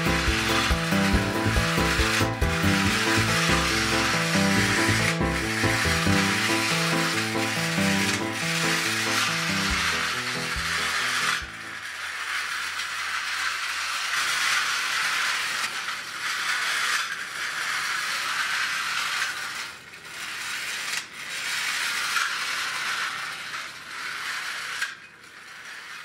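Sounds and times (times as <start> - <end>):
clockwork toy train whirring: 0.0 - 26.0.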